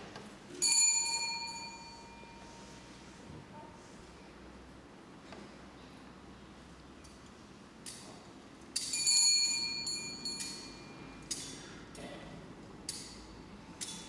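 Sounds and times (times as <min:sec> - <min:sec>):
altar bell ringing: 0:00.6 - 0:02.7, 0:08.8 - 0:11.2
light metallic clinks: 0:08.7 - 0:11.6.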